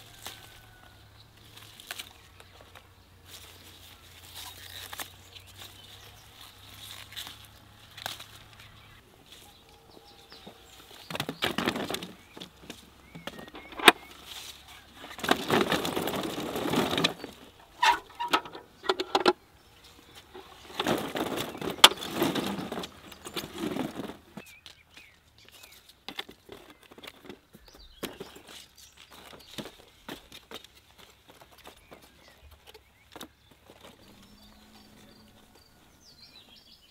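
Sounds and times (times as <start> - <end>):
pepper plants rustling: 0.0 - 36.9.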